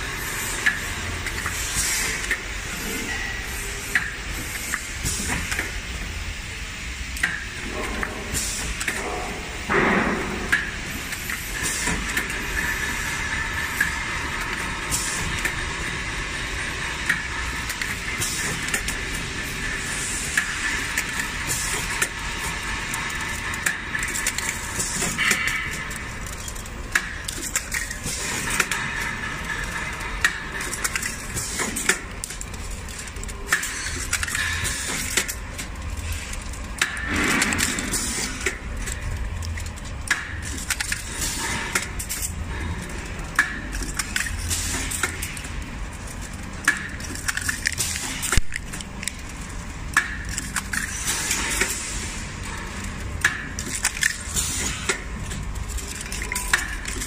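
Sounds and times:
packing machine running: 0:00.0 - 0:57.0.

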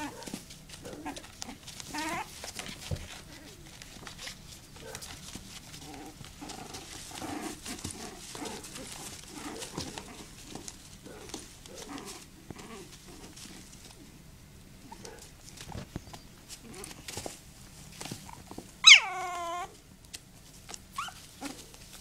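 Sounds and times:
puppies whining and yipping: 0:00.0 - 0:10.6, 0:18.2 - 0:19.8, 0:20.9 - 0:21.8
claws scratching on plastic: 0:00.0 - 0:14.0.

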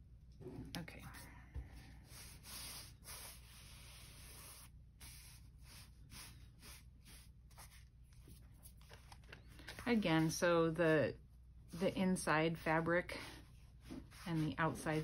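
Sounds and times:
hands rubbing a book cover: 0:02.1 - 0:10.5, 0:13.2 - 0:15.0.

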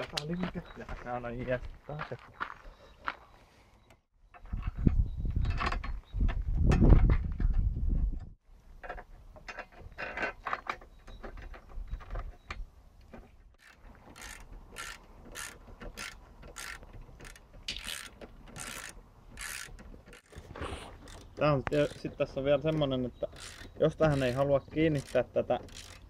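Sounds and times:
ratchet wrench clicking: 0:13.6 - 0:20.4, 0:23.4 - 0:26.0.

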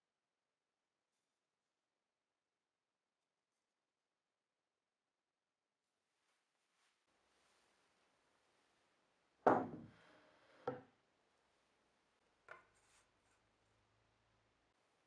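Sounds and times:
wooden knocks on a workbench: 0:09.5 - 0:10.0.

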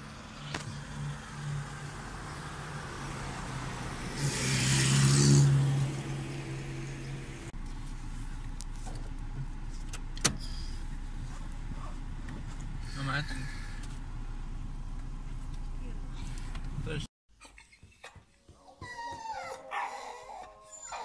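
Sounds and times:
car engine idling: 0:05.7 - 0:17.1.

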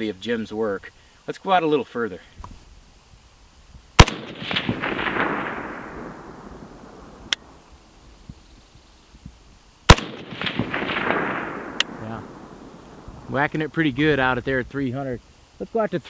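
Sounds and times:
rifle shots with echo: 0:04.0 - 0:07.6, 0:09.9 - 0:13.3.

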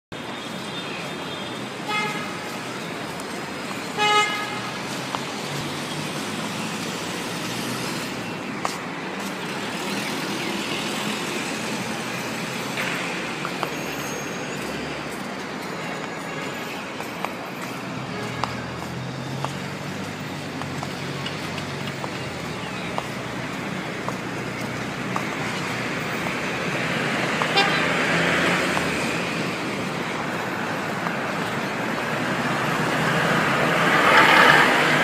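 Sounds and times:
city road traffic: 0:00.0 - 0:35.0
vehicle horns honking: 0:01.2 - 0:02.5, 0:03.9 - 0:04.7, 0:18.0 - 0:18.9, 0:27.4 - 0:28.3.

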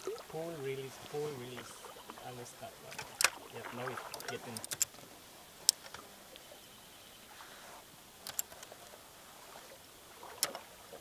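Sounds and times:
fishing gear clicking: 0:02.8 - 0:05.0, 0:05.6 - 0:06.1, 0:08.2 - 0:08.9.

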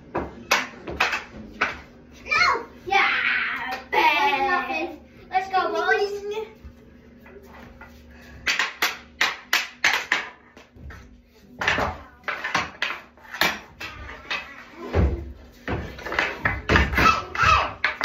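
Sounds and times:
hockey sticks clacking: 0:00.1 - 0:01.9, 0:08.4 - 0:18.0
puck slapped on tile floor: 0:00.1 - 0:01.9, 0:08.4 - 0:11.0, 0:11.6 - 0:18.0.

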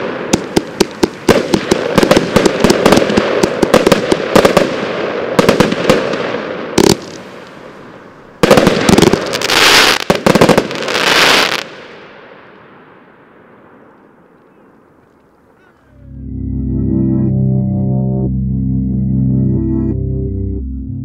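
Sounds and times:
fireworks bangs and crackling: 0:00.0 - 0:14.0
fireworks echo: 0:00.0 - 0:15.0.

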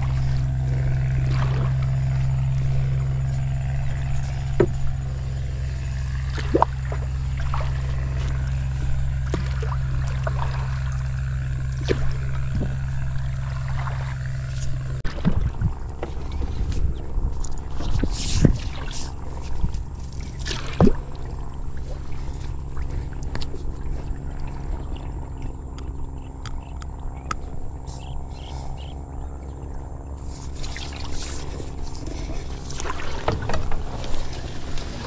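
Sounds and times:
water dripping off pole: 0:00.0 - 0:16.2
small clicks and splashes: 0:00.0 - 0:28.3, 0:29.7 - 0:35.0.

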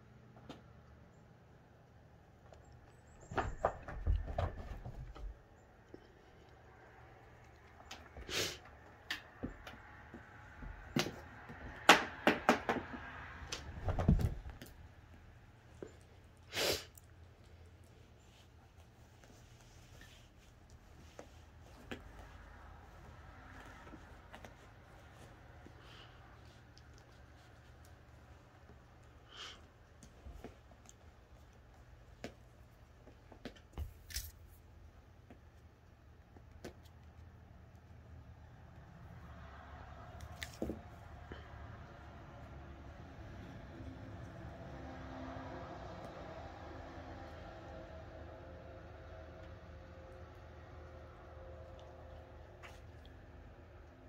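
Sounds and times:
kittens pawing at toy on carpet: 0:13.5 - 0:38.9, 0:40.1 - 0:41.4, 0:52.4 - 0:53.3
dull thump on carpet: 0:13.8 - 0:14.6.

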